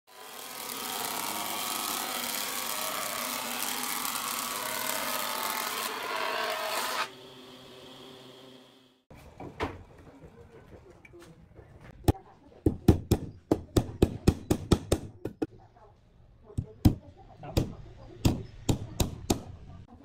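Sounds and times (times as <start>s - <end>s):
planer cutting wooden board: 0.1s - 8.7s.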